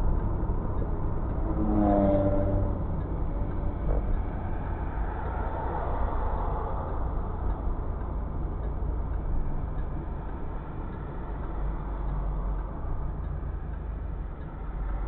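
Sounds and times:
car driving rumble from inside: 0.0 - 15.0.

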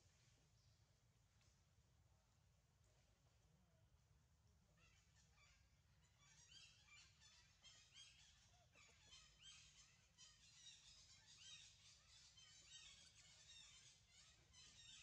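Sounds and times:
small birds chirping: 4.8 - 15.0.

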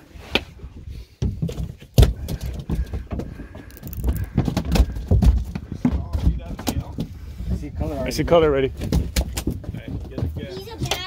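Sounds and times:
fishing reel clicking: 3.7 - 4.3.

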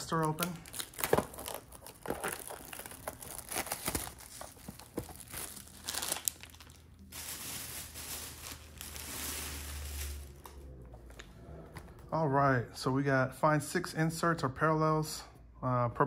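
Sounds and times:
plastic wrap crackling and tearing: 0.0 - 10.7.

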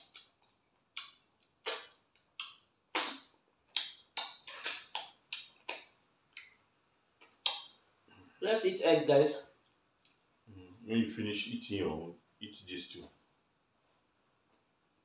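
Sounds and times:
chewing clicks: 0.0 - 6.6, 9.6 - 10.2
wet lip smacks: 1.0 - 6.6, 7.2 - 7.8.

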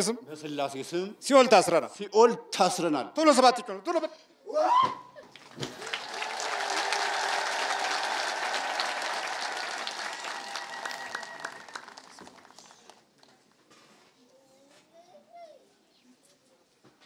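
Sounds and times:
crowd applauding: 5.3 - 13.1.

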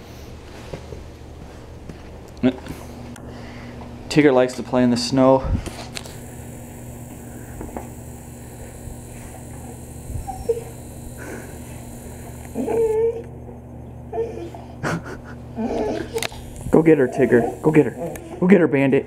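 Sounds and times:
dog whimpering: 10.2 - 10.8, 12.6 - 13.4, 14.1 - 14.8, 15.5 - 16.4.

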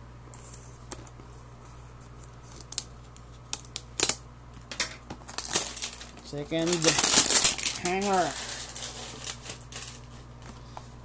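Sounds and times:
plastic crinkling: 5.2 - 10.4.

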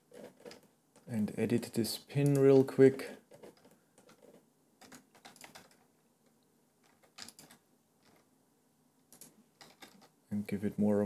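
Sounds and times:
keyboard keys clicking: 4.8 - 5.8.

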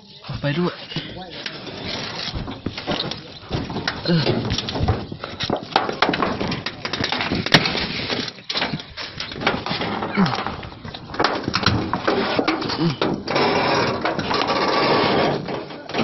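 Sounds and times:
people's voices: 0.0 - 6.4
knocking and rattling: 1.0 - 16.0.

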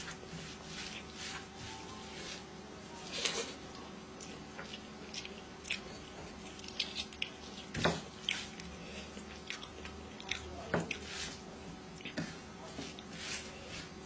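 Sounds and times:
wet chewing and lip smacks: 4.2 - 11.0.

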